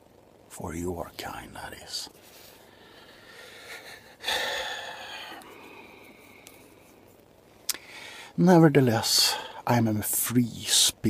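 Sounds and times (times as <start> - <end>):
man breathing out loudly: 2.6 - 6.2, 7.8 - 8.4.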